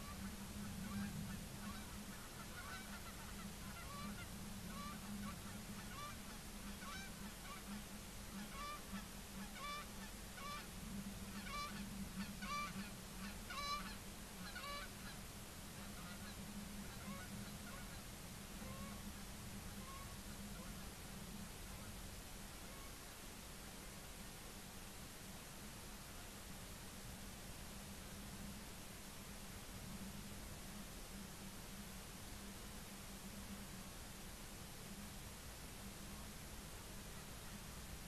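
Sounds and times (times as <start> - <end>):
geese honking: 0.0 - 10.7, 11.3 - 15.2, 15.8 - 18.0, 18.6 - 19.1, 19.7 - 20.8
steady low hum: 0.0 - 38.0.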